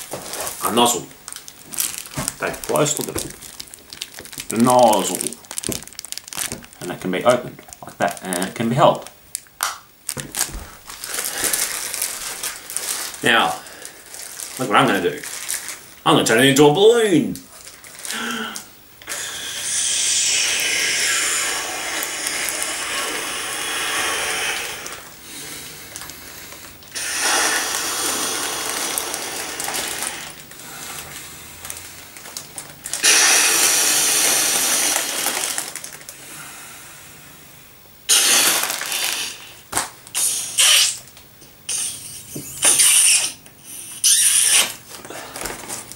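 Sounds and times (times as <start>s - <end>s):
foil bag crinkling: 0.0s - 19.2s, 24.8s - 36.2s, 38.1s - 40.0s, 44.0s - 45.9s
man blowing into foil bag: 1.6s - 7.0s, 10.2s - 15.9s, 17.8s - 32.2s, 32.8s - 37.0s, 38.0s - 45.9s.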